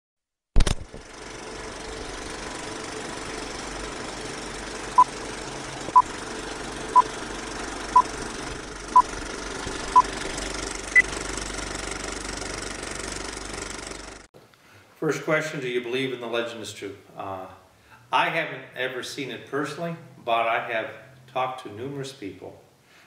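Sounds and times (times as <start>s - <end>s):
film projector rattle: 0.6s - 14.3s.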